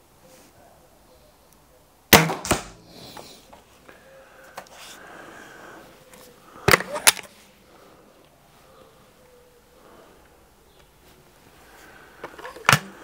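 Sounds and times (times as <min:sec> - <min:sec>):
air rifle shot crack: 0:02.1 - 0:03.0.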